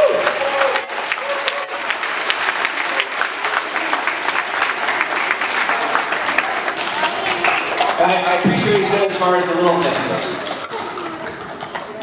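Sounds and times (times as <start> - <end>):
children applauding: 0.0 - 8.4.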